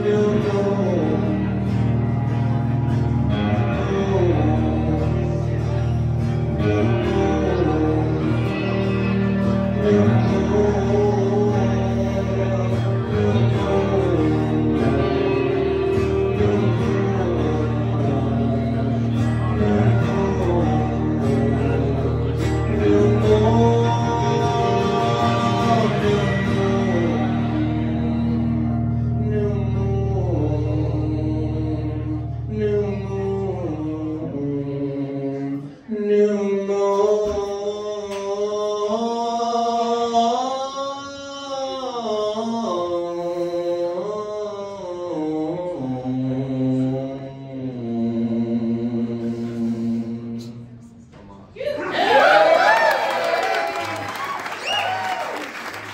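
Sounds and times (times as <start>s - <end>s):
guitar ringing chords: 0.0s - 34.5s
person singing: 0.0s - 55.9s.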